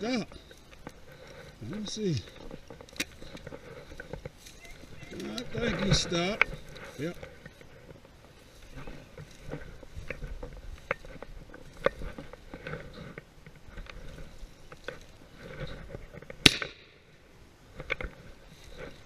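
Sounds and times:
rustling through dry grass: 0.0 - 19.0
shotgun shot: 16.4 - 16.8.

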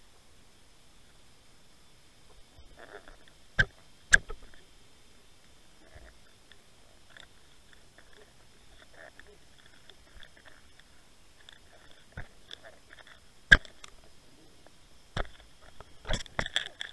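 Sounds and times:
faint underwater clicks and crackles: 0.0 - 16.9
thin electronic whine: 0.0 - 16.9.

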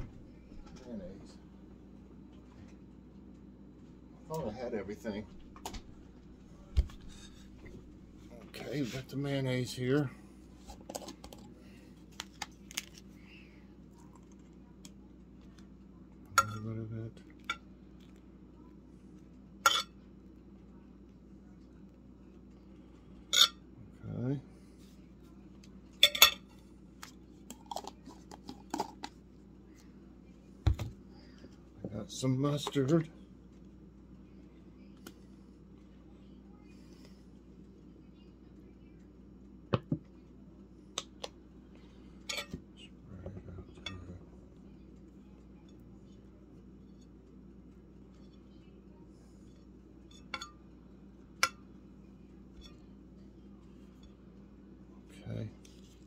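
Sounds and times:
knife clinking on ceramic plate: 19.7 - 20.0.

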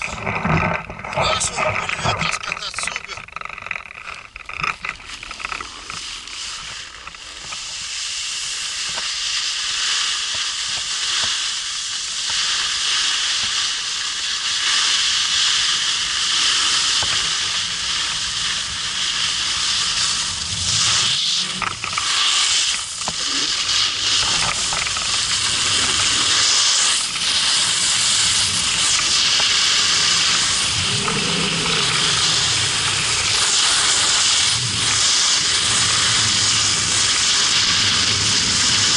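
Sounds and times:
snowboard scraping over snow: 0.0 - 3.2, 4.4 - 38.9
low rumbles: 30.0 - 34.0.

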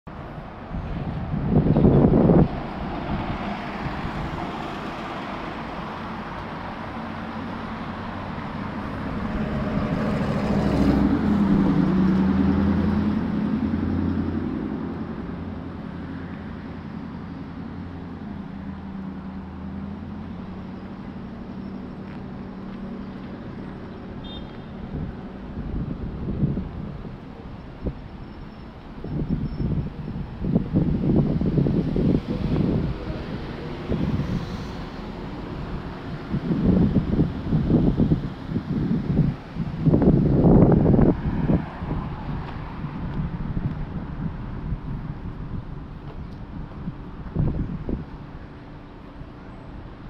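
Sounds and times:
road traffic: 0.0 - 50.0
vehicle engine passing: 0.7 - 24.2, 30.4 - 45.9.

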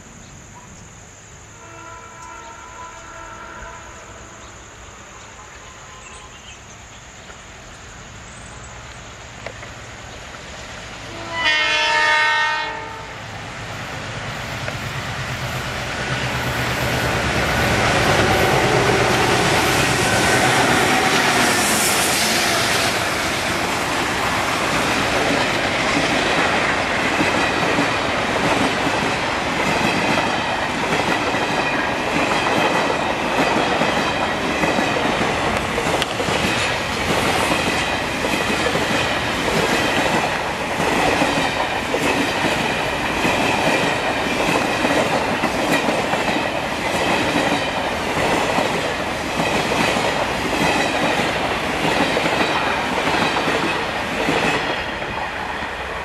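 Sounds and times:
diesel locomotive engines: 0.0 - 56.0
train horn: 1.6 - 6.5, 11.1 - 13.2, 17.1 - 23.4.

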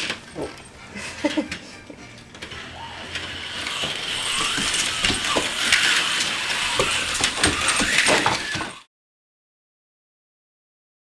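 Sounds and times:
slot cars clicking and rattling: 0.0 - 8.8
slot car motors whirring: 1.3 - 8.9.

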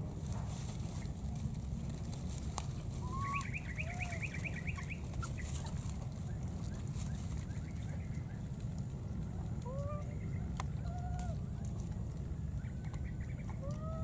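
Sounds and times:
steady low rumble: 0.0 - 14.0
animal whistled notes: 3.0 - 4.9.

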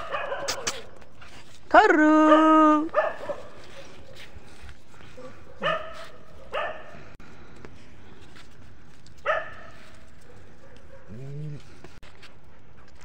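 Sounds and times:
dogs barking and yipping: 0.0 - 1.6, 2.2 - 7.2, 9.2 - 11.8.

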